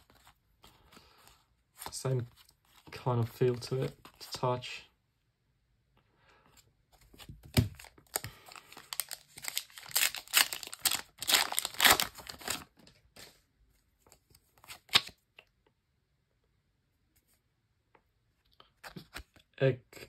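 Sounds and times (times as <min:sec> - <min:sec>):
foil packet tearing and crinkling: 0:07.8 - 0:12.7
cards sliding: 0:14.6 - 0:15.2.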